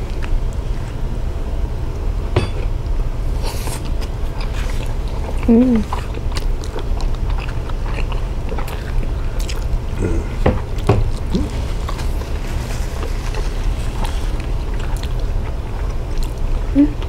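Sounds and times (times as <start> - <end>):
steady low hum: 0.0 - 17.0
chewing: 3.4 - 17.0.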